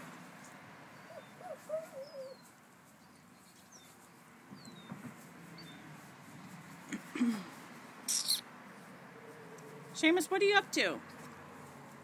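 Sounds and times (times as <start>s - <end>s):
birds chirping: 0.4s - 10.9s
low wavering bird call: 1.0s - 2.5s.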